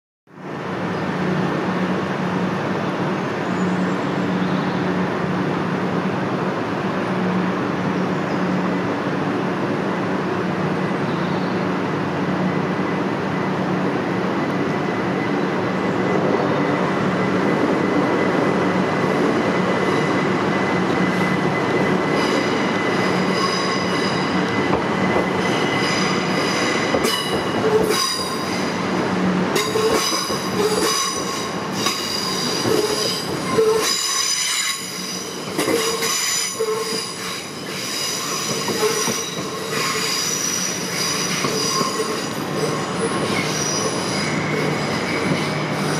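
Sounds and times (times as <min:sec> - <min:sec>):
electric train running hum: 0:00.4 - 0:45.9
high-pitched train whining tones: 0:12.5 - 0:45.9.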